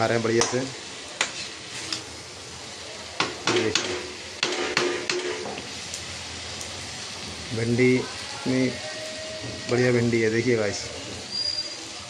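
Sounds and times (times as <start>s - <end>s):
food sizzling in a pan: 0.0s - 12.0s
spoon scraping a pan: 1.2s - 2.0s, 3.5s - 5.6s.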